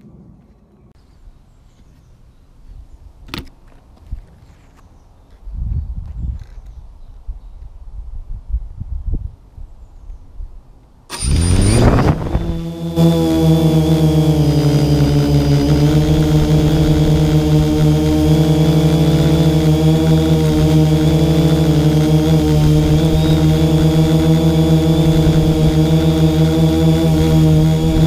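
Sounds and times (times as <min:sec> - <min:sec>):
drone propellers buzzing: 0:11.1 - 0:28.0.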